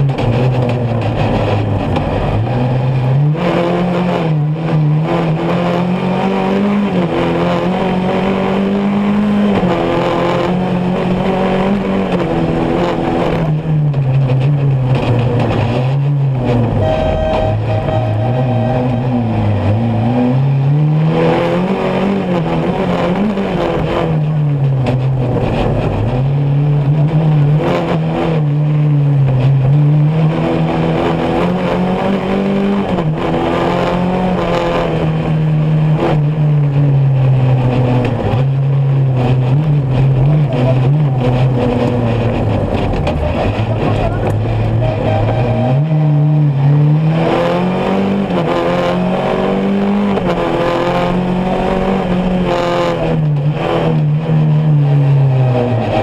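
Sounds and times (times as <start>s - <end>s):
buggy engine revving: 0.0s - 56.0s
car on dirt track: 0.0s - 56.0s.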